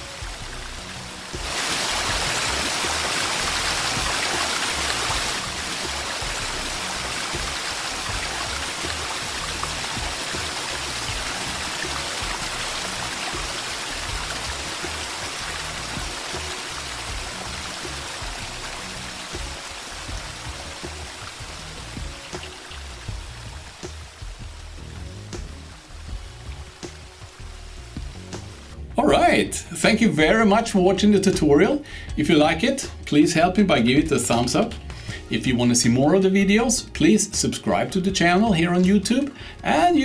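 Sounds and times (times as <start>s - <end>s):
rushing water: 0.0s - 29.3s
background music: 0.0s - 40.0s.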